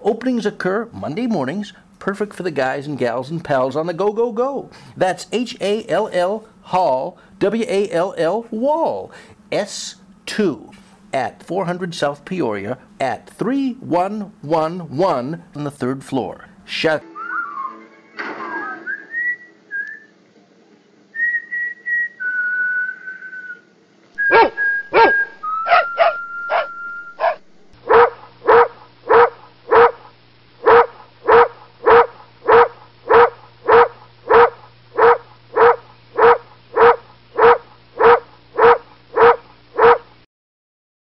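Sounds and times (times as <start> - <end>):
person whistling: 17.1 - 20.1, 21.2 - 23.6, 24.2 - 27.2
dog barking: 24.3 - 40.1.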